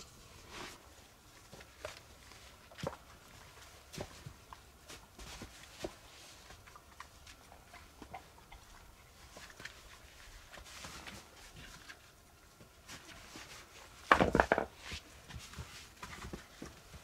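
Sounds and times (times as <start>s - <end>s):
faint ticks and rustling: 0.8s - 14.0s.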